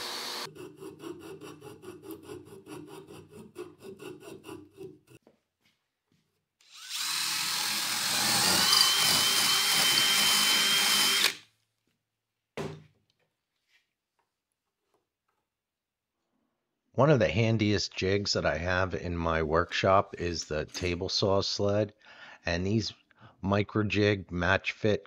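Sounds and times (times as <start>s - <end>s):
drill whining boring wood: 0.0s - 0.5s, 6.6s - 11.4s.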